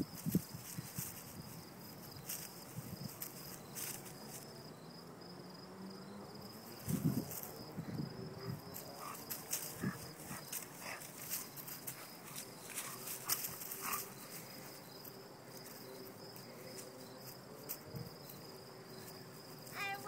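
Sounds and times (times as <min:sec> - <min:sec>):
crickets chirping: 0:00.0 - 0:20.0
dogs playing low sound: 0:08.3 - 0:17.8.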